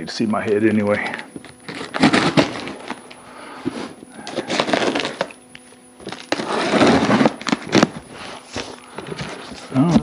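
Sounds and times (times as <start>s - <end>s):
cardboard crackling and scraping: 1.6s - 3.0s, 3.6s - 5.3s, 6.0s - 10.0s.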